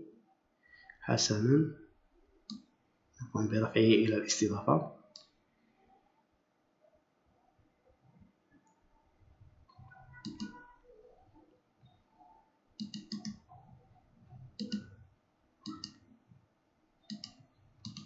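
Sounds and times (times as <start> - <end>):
computer mouse clicking: 5.1 - 5.3, 10.1 - 10.7, 12.8 - 13.6, 14.5 - 15.0, 15.6 - 16.0, 17.1 - 18.0.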